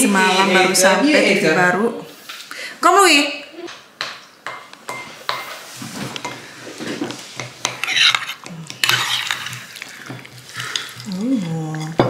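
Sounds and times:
spoon clinking on ceramic dish: 4.5s - 5.5s
spoon scraping potato bake: 7.0s - 12.0s.

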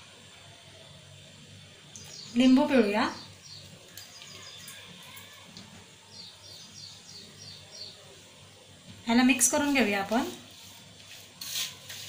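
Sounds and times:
small bird chirping: 1.9s - 5.4s, 6.1s - 8.0s.

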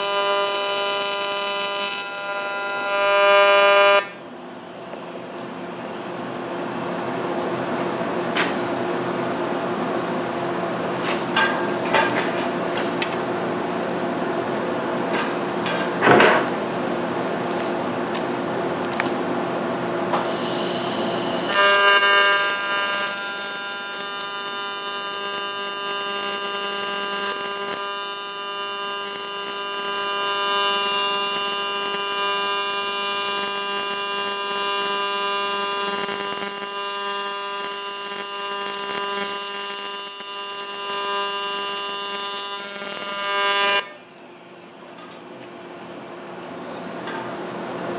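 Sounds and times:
welding arc buzzing: 0.0s - 7.3s, 20.1s - 44.1s
steady hum: 0.0s - 10.9s.

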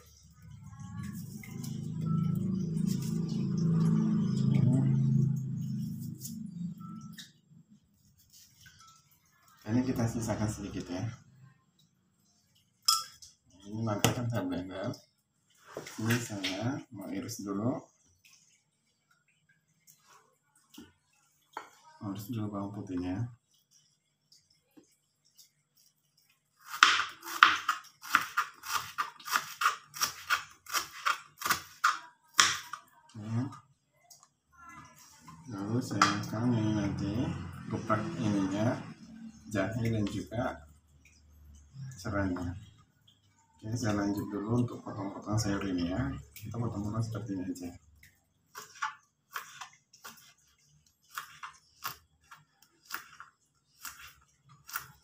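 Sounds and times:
knife slicing garlic on cutting board: 26.6s - 32.8s, 51.1s - 52.0s, 52.8s - 55.0s.

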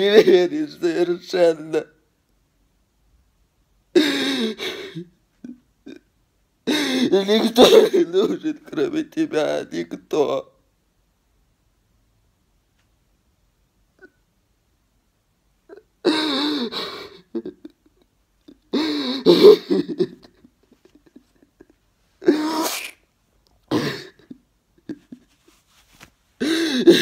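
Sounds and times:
man sobbing: 0.0s - 1.9s, 3.9s - 10.5s, 15.7s - 23.0s, 23.6s - 25.6s, 26.4s - 27.0s.

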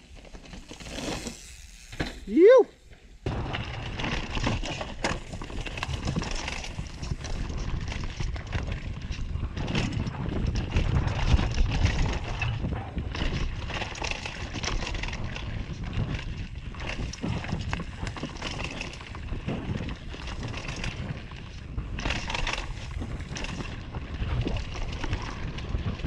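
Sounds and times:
bike rattling and knocking: 0.0s - 26.0s
bike tyres rumbling over dirt: 0.0s - 26.0s
wind on microphone: 5.6s - 26.0s.

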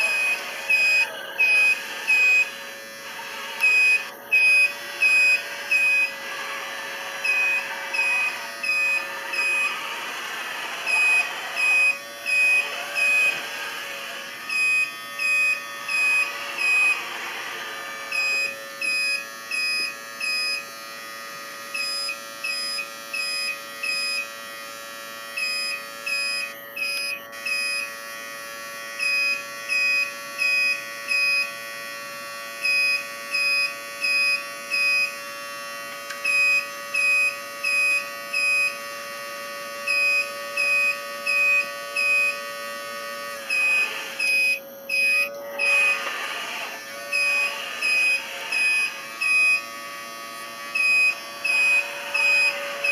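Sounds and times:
high reversing beeps: 0.0s - 2.6s, 3.6s - 6.1s, 7.2s - 9.8s, 14.5s - 17.0s, 43.5s - 46.0s, 47.1s - 49.7s, 50.8s - 52.9s
electric motor whine: 0.0s - 52.9s.

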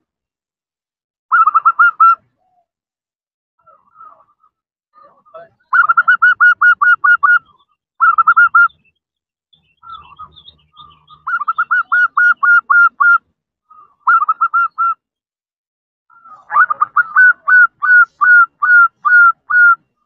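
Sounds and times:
dove staccato call notes: 1.3s - 2.2s, 5.7s - 7.4s, 8.0s - 8.9s, 9.6s - 15.0s, 16.3s - 19.8s.

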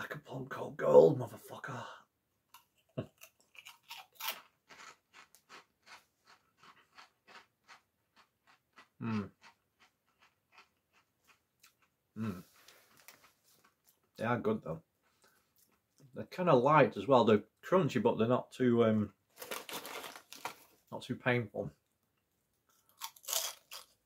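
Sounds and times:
crunchy snack being chewed: 2.6s - 12.0s, 22.7s - 24.0s.

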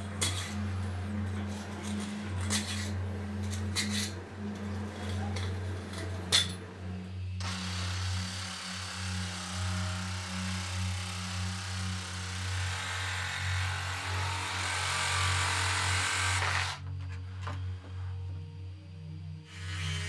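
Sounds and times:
metal pick scraping metal: 0.1s - 6.7s
reciprocating saw cutting: 7.4s - 16.8s.

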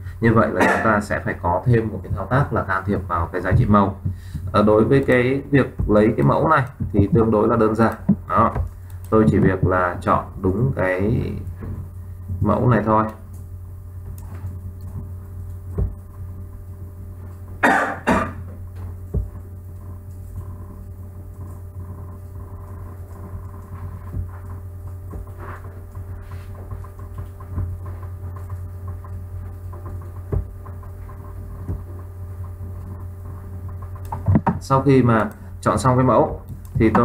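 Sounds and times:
low electrical hum: 0.0s - 37.0s
person coughing: 0.6s - 1.0s, 17.6s - 18.5s.

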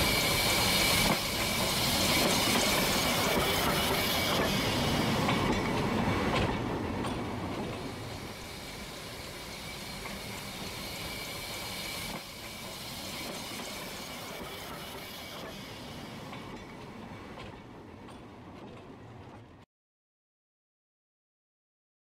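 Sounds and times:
train rolling on rails: 0.0s - 19.6s.

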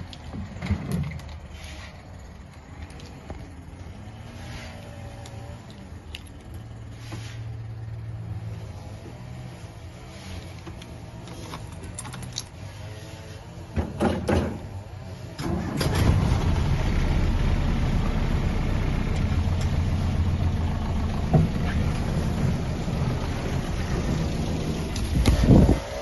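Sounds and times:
car engine starting and running: 2.2s - 26.0s
loud engine bursts: 15.3s - 26.0s.

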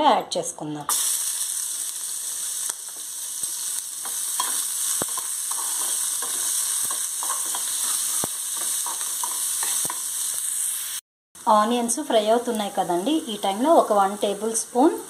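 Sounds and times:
onions sizzling in hot oil: 0.9s - 15.0s
metal spatula scraping pan: 4.0s - 10.0s.

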